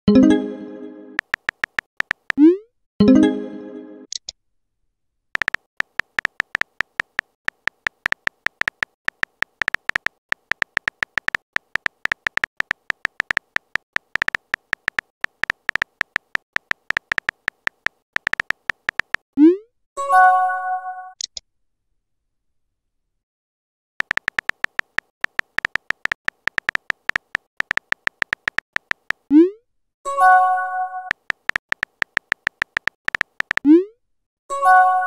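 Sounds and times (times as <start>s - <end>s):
keyboard tap sounds: 1.2s - 2.4s, 5.4s - 19.3s, 24.0s - 29.3s, 31.1s - 33.7s.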